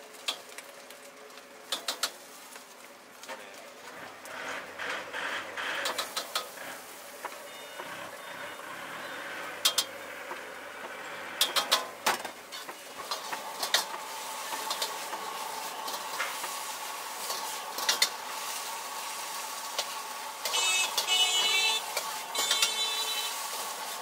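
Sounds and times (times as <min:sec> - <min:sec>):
food sizzling in a wok: 0:00.0 - 0:03.2, 0:05.8 - 0:24.0
metal utensils clanking on wok: 0:05.8 - 0:06.6, 0:11.0 - 0:23.9.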